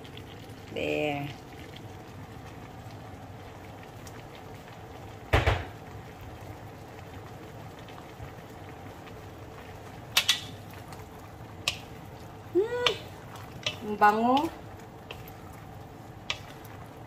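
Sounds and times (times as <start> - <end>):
broth bubbling in a wok: 0.0 - 17.0
loud knocks: 5.3 - 5.7
wooden spatula stirring in wok: 10.2 - 17.0.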